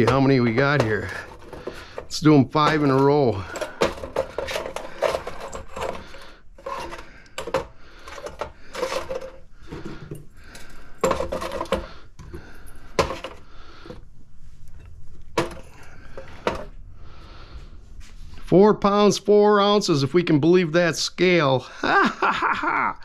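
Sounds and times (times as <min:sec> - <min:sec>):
small metal parts clinking: 0:02.6 - 0:09.4.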